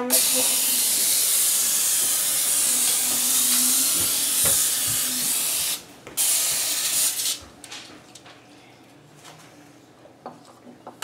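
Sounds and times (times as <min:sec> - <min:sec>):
aerosol spray hissing: 0:00.1 - 0:07.4.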